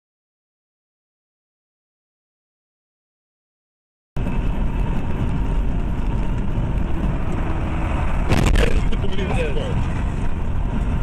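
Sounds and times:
car road and engine noise: 4.2 - 11.0
burst of noise: 8.1 - 9.0.

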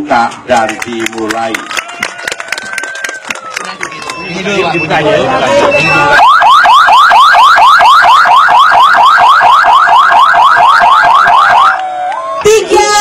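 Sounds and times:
electronic siren yelping: 3.8 - 12.1.

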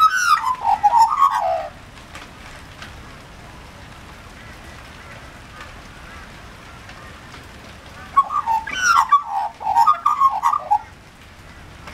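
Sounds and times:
magpie warbling call: 0.0 - 1.8, 8.1 - 10.9
rain hiss: 0.0 - 11.9.

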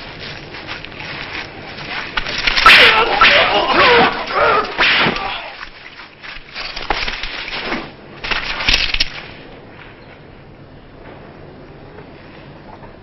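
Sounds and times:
sword fight hits: 2.5 - 5.6
short cry: 2.6 - 5.6.

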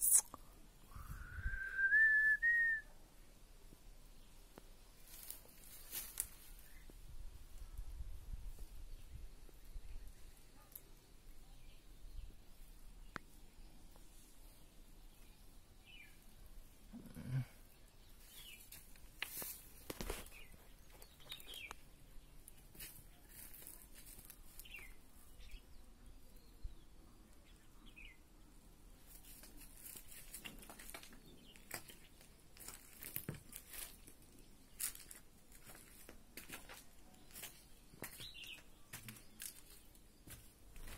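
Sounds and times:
footsteps on dry leaves: 5.0 - 6.8, 18.2 - 21.7, 22.6 - 24.8, 29.1 - 40.9.

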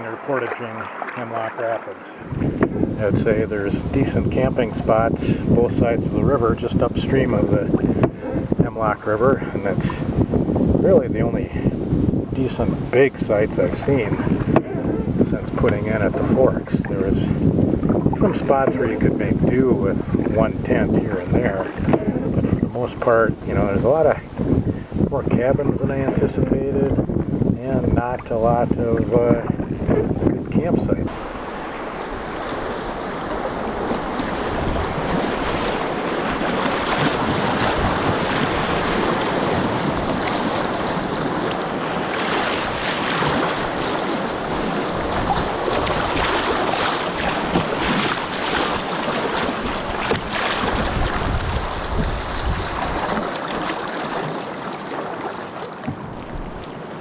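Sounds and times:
river water rushing and splashing: 0.0 - 10.8, 11.4 - 25.0, 31.0 - 57.0
wind buffeting microphone: 0.0 - 54.4, 55.8 - 57.0.

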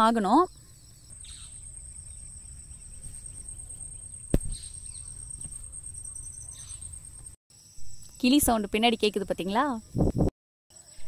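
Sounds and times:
high-pitched insect whine: 0.0 - 11.0
sharp knock: 4.3 - 4.6.

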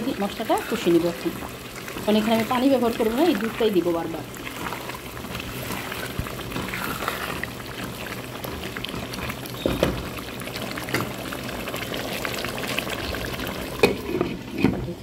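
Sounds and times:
spatula stirring: 0.0 - 9.6
gravy bubbling in a pan: 0.0 - 15.0.

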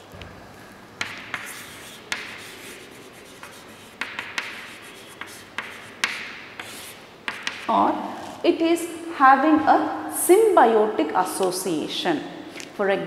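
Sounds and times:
chalk writing on chalkboard: 1.0 - 7.7.

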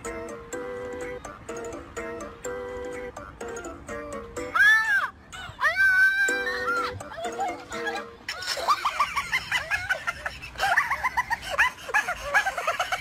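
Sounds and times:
high-pitched laughter: 4.6 - 13.0.

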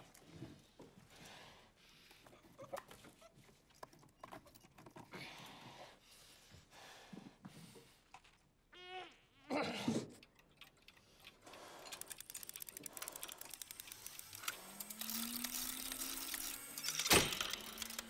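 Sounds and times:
small clicks and scrapes: 2.0 - 5.8, 10.0 - 18.0
man breathing heavily through nose: 5.1 - 8.1.

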